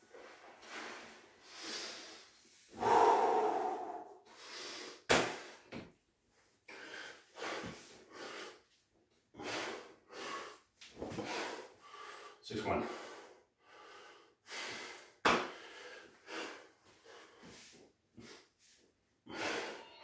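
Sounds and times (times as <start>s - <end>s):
man breathing heavily: 0.7s - 5.7s, 6.7s - 8.7s, 9.3s - 20.0s.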